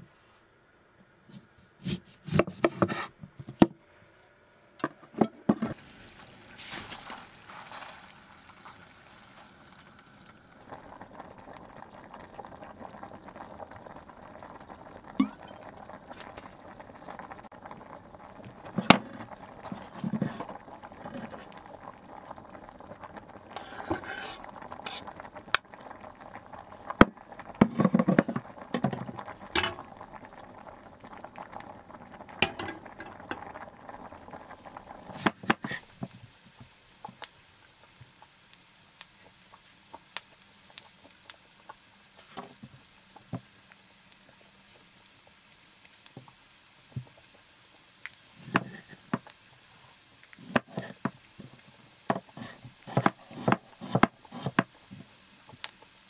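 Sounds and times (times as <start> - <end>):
utensil scraping a pot: 23.5 - 25.8, 50.4 - 51.1, 52.1 - 54.7.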